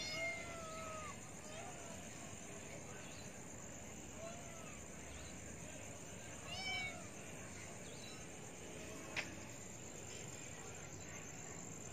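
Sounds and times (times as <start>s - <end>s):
kitten meowing: 0.0s - 1.2s
crickets chirping: 0.0s - 11.9s.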